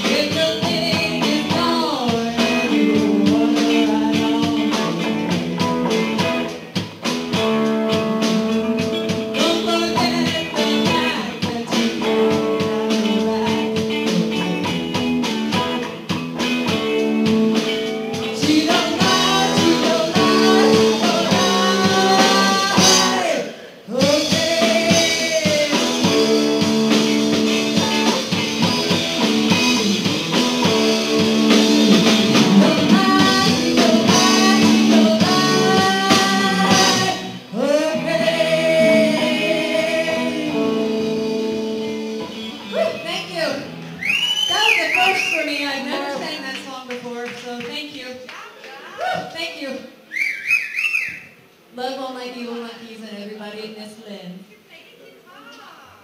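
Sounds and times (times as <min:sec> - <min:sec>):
person singing into a microphone: 0:00.0 - 0:06.0, 0:08.2 - 0:14.7, 0:18.0 - 0:27.0, 0:32.4 - 0:42.0
electric guitars: 0:00.0 - 0:47.0
drums: 0:00.0 - 0:54.7.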